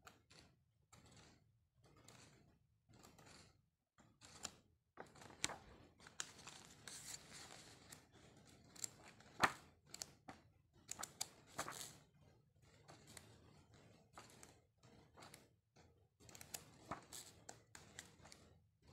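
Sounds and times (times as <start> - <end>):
pages turning: 5.0 - 8.0, 8.7 - 10.1, 10.9 - 12.0, 16.3 - 17.4.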